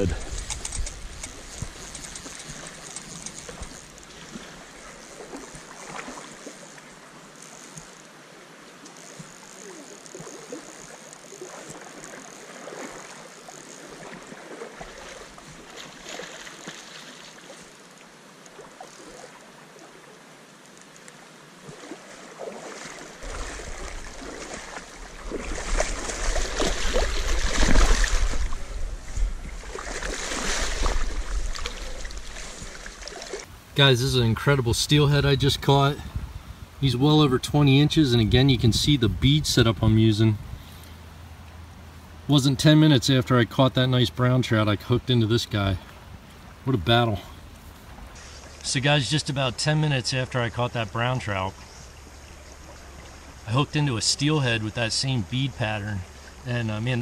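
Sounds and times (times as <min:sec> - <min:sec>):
river water running: 0:00.0 - 0:57.0
fish thrashing splashes: 0:21.7 - 0:28.8, 0:29.6 - 0:33.5.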